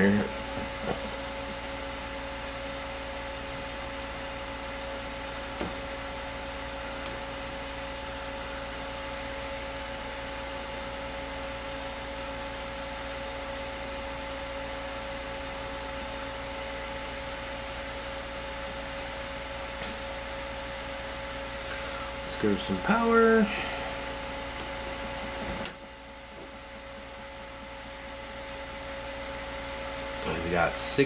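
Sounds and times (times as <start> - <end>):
electrical hum and hiss: 0.0 - 31.0
faint steady whine: 0.0 - 31.0.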